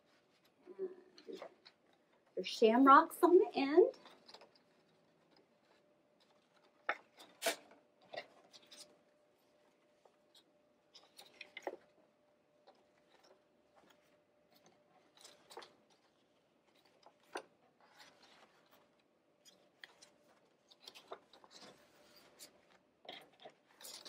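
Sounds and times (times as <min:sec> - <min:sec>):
cardstock rustling and tapping: 0:12.7 - 0:24.0.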